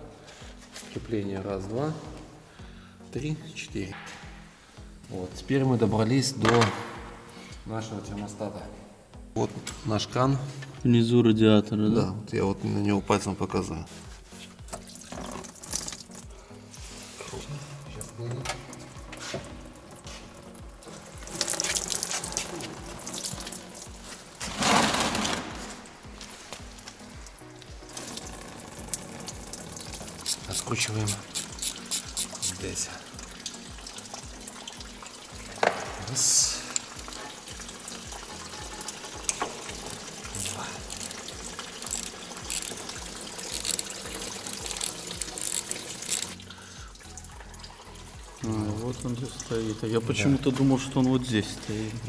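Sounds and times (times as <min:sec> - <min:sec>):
coolant trickling into drain pan: 0:14.7 - 0:16.4, 0:17.8 - 0:25.4, 0:27.2 - 0:52.0
wrench clicks: 0:30.2 - 0:32.6, 0:40.3 - 0:41.2, 0:41.8 - 0:42.8, 0:43.4 - 0:46.4.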